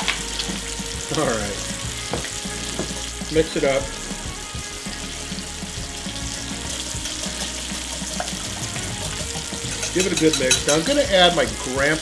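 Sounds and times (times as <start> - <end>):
bacon sizzling in frying pan: 0.0 - 12.0
whisk clicking in glass bowl: 9.1 - 11.0.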